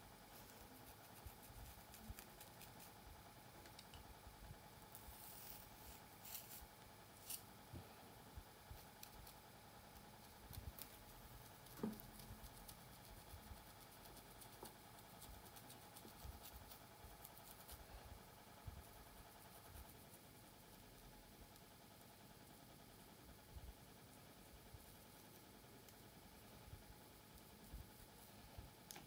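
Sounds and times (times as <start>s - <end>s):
fingernails scratching through hair: 5.0s - 6.6s, 7.2s - 7.4s.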